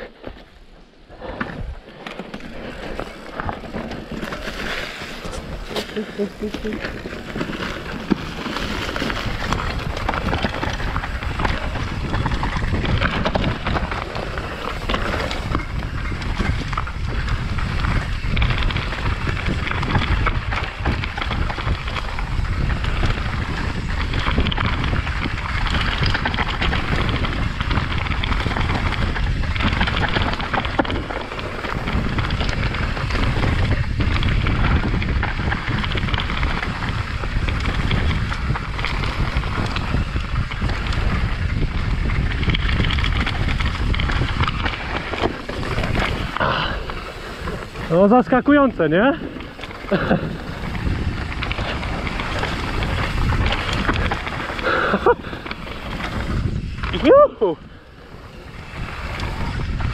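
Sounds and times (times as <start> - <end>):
bike rattling over rough trail: 0.0 - 59.9
wind rumbling on microphone: 0.0 - 59.9.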